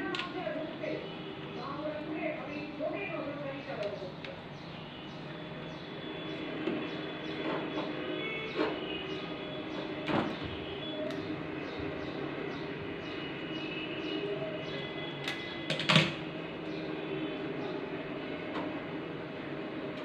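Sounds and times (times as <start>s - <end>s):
pliers and wire strippers clicking: 15.2s - 16.1s.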